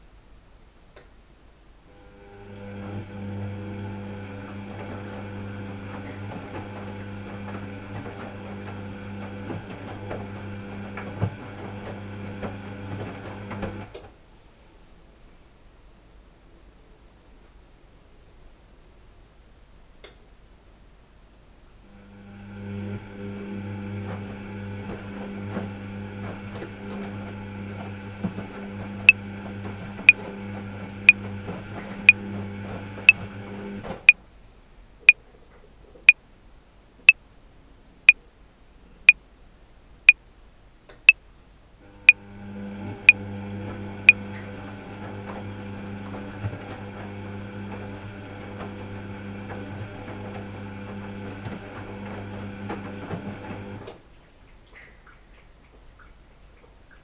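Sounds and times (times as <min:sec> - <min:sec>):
washing machine motor hum: 0:01.9 - 0:14.0, 0:21.9 - 0:34.1, 0:41.8 - 0:54.0.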